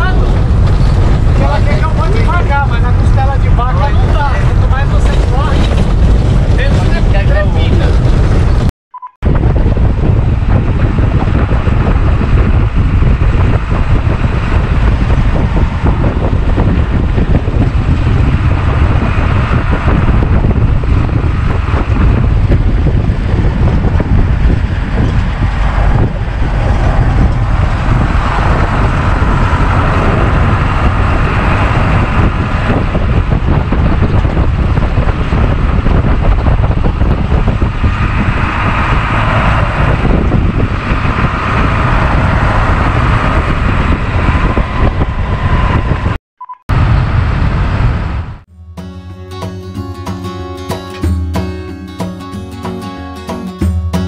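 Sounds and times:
engine and road rumble: 0.0 - 54.0.

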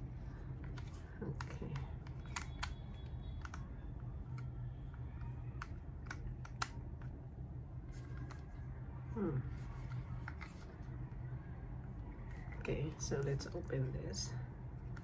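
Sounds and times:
steady low hum: 0.0 - 15.0
plastic clicks and taps: 5.6 - 7.1.

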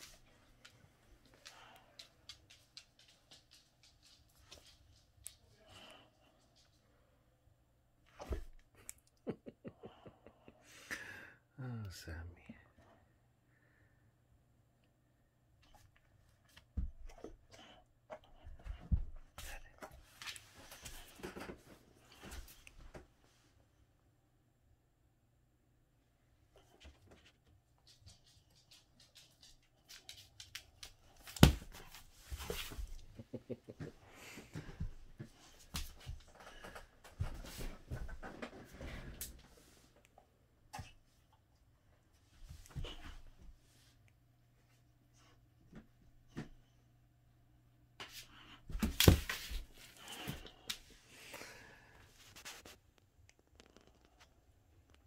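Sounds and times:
dog claws clicking on floor: 0.0 - 5.4, 27.8 - 31.9.

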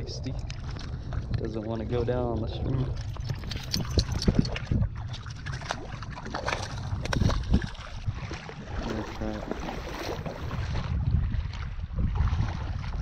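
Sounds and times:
water splashing around legs: 0.0 - 13.0.

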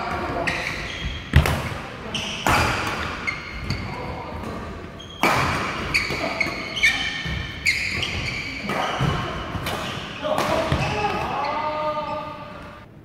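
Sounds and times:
shoes squeaking on court: 0.2 - 12.3
rackets hitting shuttlecock: 4.4 - 11.3.

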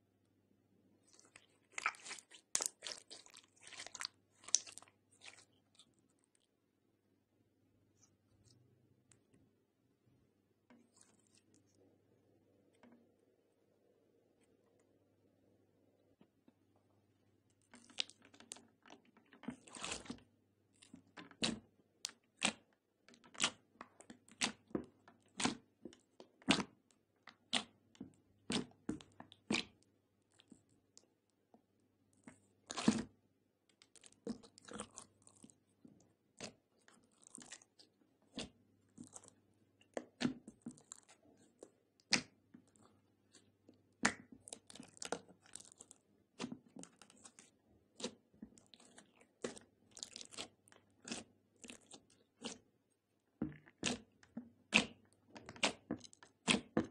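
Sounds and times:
slime wet pops and squelches: 1.1 - 5.4, 43.9 - 47.4, 53.5 - 56.9.

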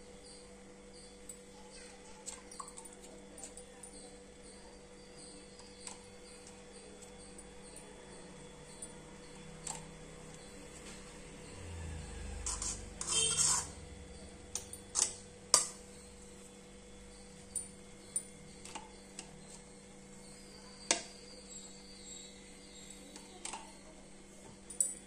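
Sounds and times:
spoon scraping a metal pot: 12.2 - 13.9, 14.9 - 15.7.

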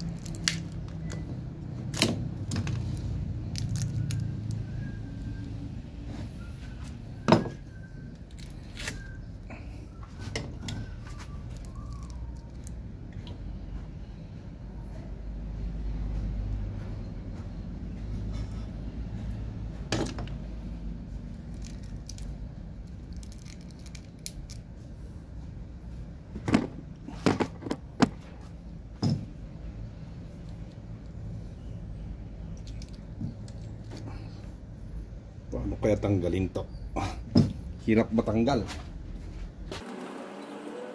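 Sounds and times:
metal parts clinking and knocking: 22.9 - 24.6.

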